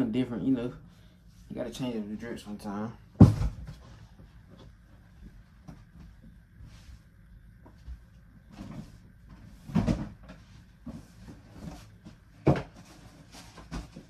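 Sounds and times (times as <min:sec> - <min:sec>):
rummaging in a closet: 0:00.1 - 0:14.0
loud thump: 0:03.2 - 0:03.8.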